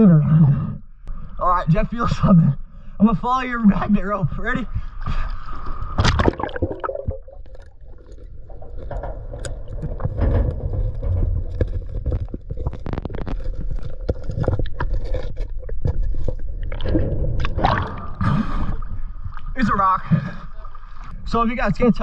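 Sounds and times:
water sloshing and gurgling: 0.0 - 22.0
knocks and scrapes: 7.9 - 21.1.

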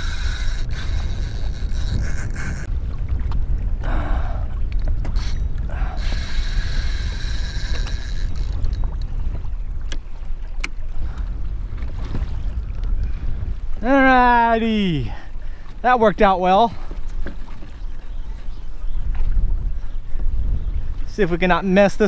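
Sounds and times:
fishing reel drag whining: 0.0 - 2.7, 5.1 - 9.1
wind rumble on microphone: 0.0 - 22.0.

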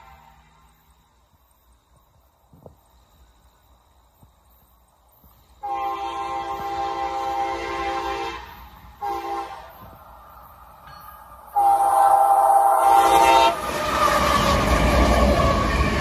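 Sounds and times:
locomotive air horn blasts: 0.0 - 0.7, 5.6 - 9.9, 11.5 - 13.8
train rumble: 0.0 - 16.0.

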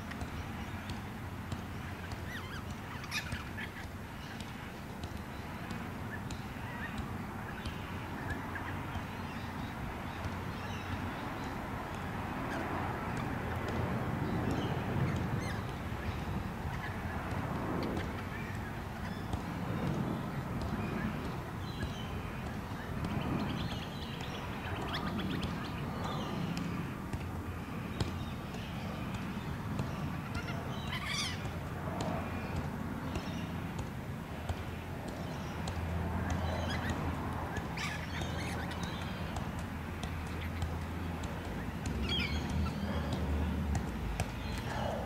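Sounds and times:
ball taps while juggled: 0.0 - 10.8, 11.4 - 27.3, 27.9 - 44.9
birds calling: 1.8 - 13.4, 27.7 - 33.8, 34.6 - 45.0.

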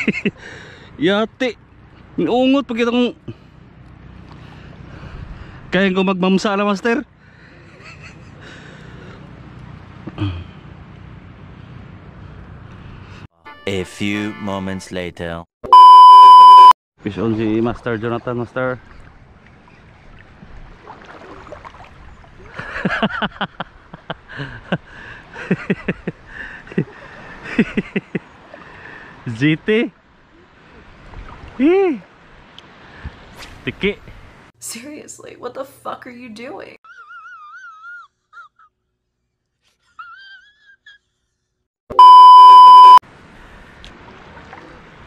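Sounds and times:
test tone bleep: 15.7 - 16.8, 41.9 - 43.0
water splashing around wading person: 17.1 - 22.8, 30.4 - 33.6, 43.4 - 45.0.

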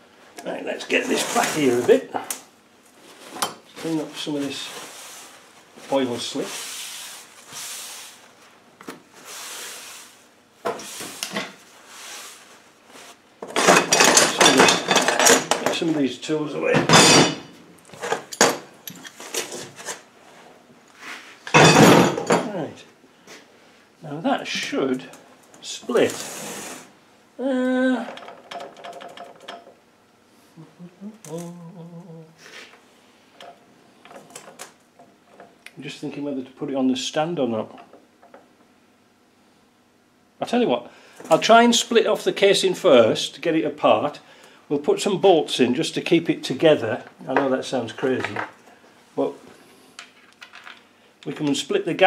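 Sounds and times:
person humming low: 27.4 - 28.1, 30.5 - 32.8.

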